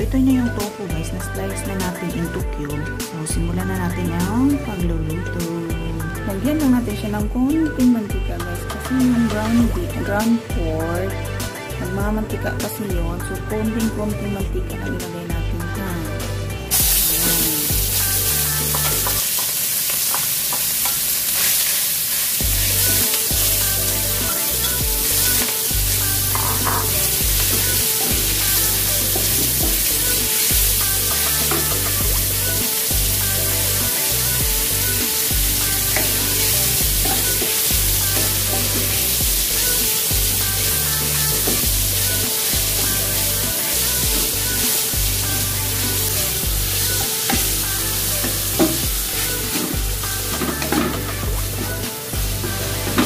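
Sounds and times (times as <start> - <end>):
background music with bass: 0.0 - 19.2, 22.4 - 53.0
meat sizzling in oil: 16.7 - 53.0.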